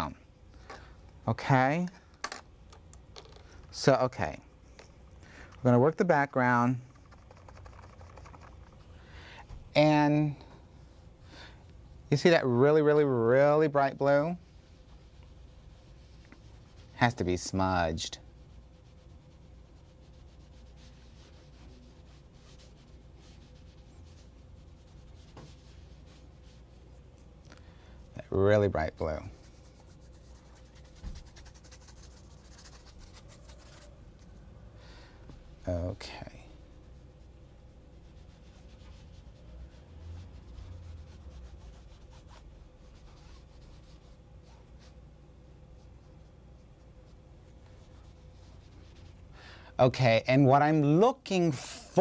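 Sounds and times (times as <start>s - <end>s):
faint steady hum: 0.0s - 52.0s
sponge rubbing on painting: 13.8s - 27.1s, 28.9s - 34.0s, 36.5s - 45.0s, 47.0s - 49.4s.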